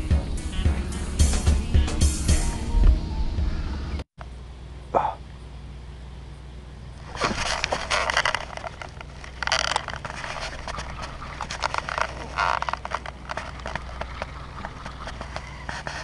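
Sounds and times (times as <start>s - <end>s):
low hum: 0.0s - 16.0s
clothing rustling: 7.0s - 16.0s.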